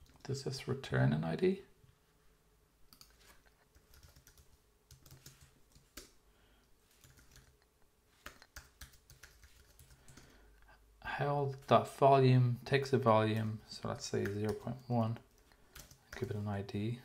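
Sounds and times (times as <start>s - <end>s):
typing on computer keyboard: 2.9s - 6.1s, 7.0s - 7.6s, 8.2s - 10.3s, 14.2s - 16.3s.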